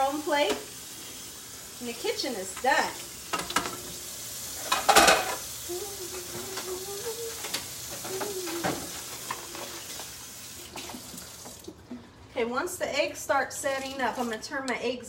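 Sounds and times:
eggs sizzling in a skillet: 0.0 - 11.8
dishes clattering: 3.3 - 3.9, 4.6 - 5.5, 7.4 - 10.0
dishes clinking: 4.6 - 5.4.

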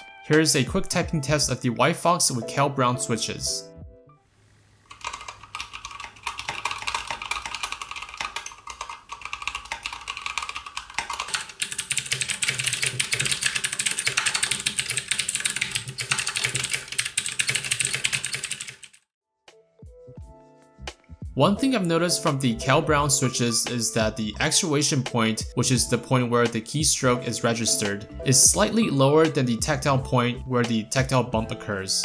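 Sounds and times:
fast typing on mechanical keyboards: 4.9 - 19.0.

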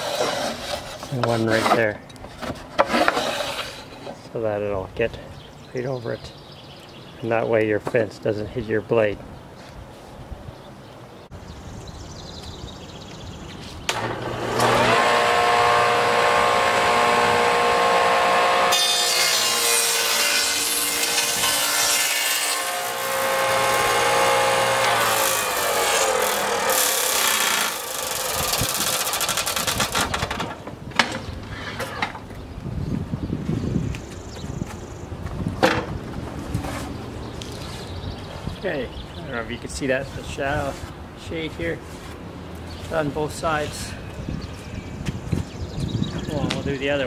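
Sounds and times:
saw cutting wood board: 0.0 - 2.0, 2.8 - 4.0, 13.9 - 30.3
table saw running: 14.0 - 30.0.

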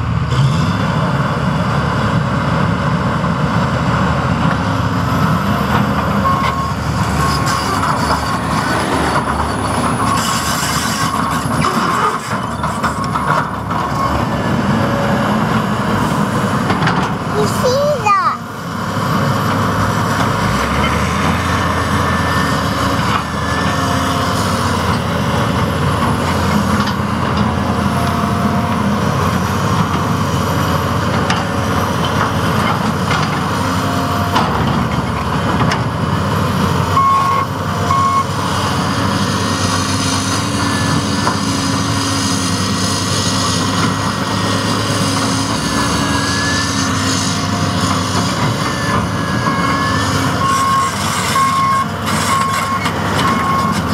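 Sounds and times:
excavator diesel engine running: 0.0 - 53.9
reversing alarm beeps: 6.2 - 7.8, 37.0 - 38.4, 49.4 - 53.8.

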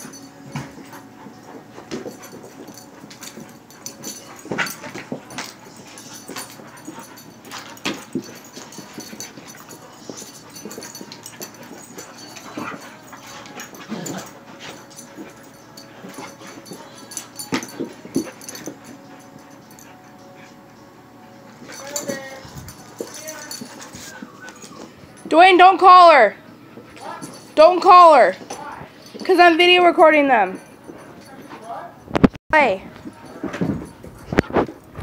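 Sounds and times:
puppies scuffling on carpet: 0.0 - 25.3.

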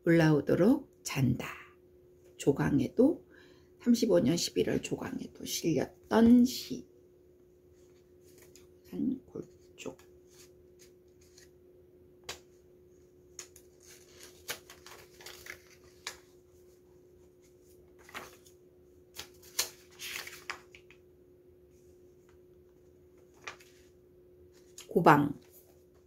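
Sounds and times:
low steady hum: 0.0 - 26.0
paper rustling: 7.8 - 8.8, 9.4 - 11.6, 13.3 - 21.0, 22.2 - 26.0.

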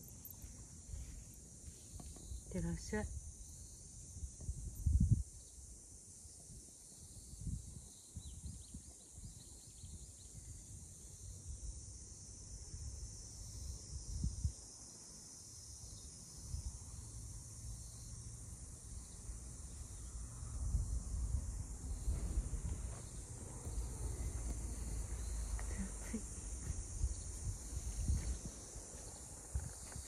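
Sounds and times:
low bumps: 21.1 - 28.5.

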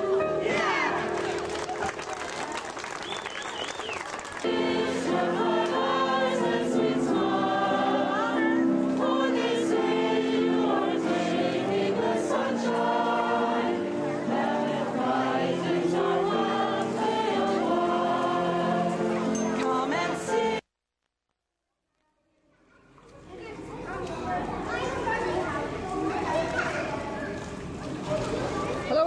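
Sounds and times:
group singing in chorus: 0.0 - 1.6, 4.4 - 20.6.

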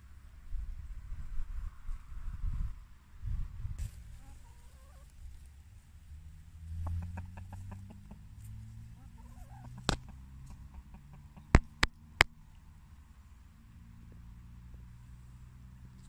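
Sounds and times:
hens clucking: 3.8 - 5.4, 6.7 - 12.0
hen pecking at camera: 6.8 - 12.3.

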